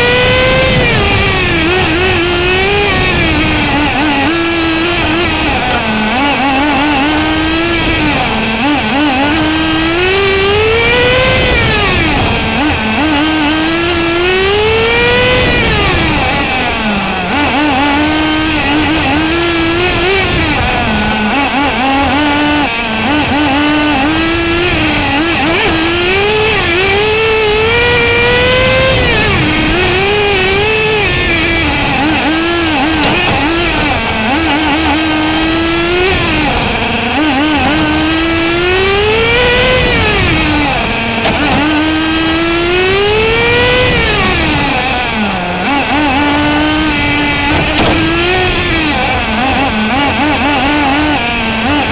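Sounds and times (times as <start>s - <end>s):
small engine revving: 0.0s - 51.9s
wind and tyre noise: 0.0s - 51.9s.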